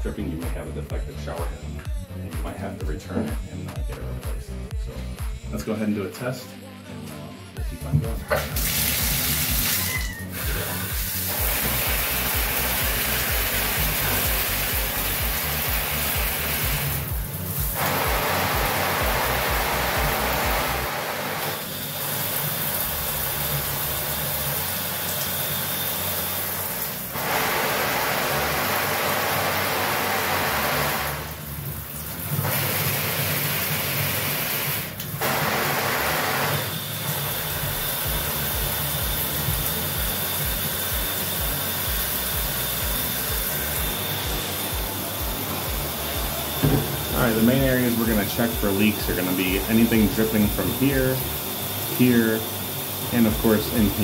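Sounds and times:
shower water spraying into tub: 8.3 - 54.0.

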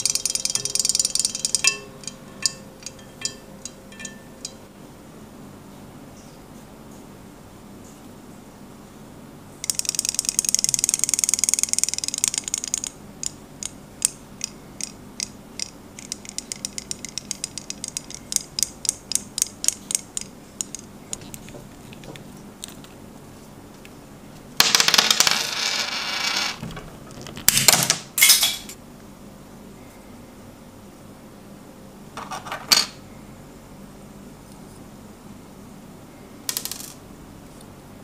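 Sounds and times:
toy motor rattling buzz: 0.0 - 1.7, 9.6 - 12.9.

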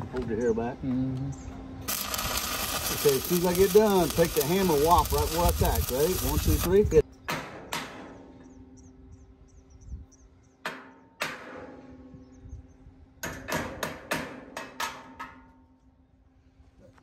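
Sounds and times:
hammer striking steel pipe: 10.7 - 11.7.

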